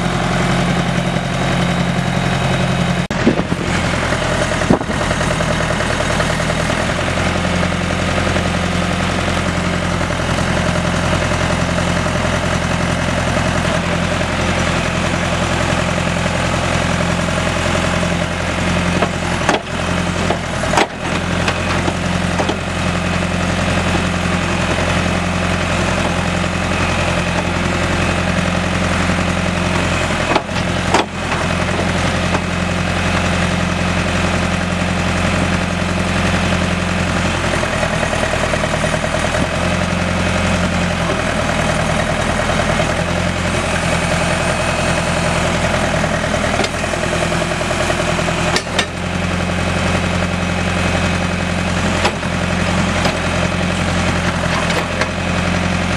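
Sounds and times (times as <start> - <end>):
diesel engine running: 0.0 - 55.9.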